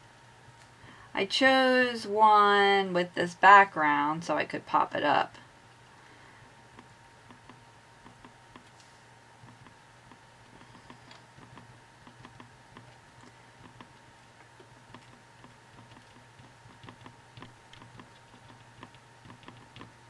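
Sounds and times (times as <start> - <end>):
faint steady hum: 0.0 - 20.0
glue pen tapping paper: 6.7 - 8.8, 9.4 - 20.0.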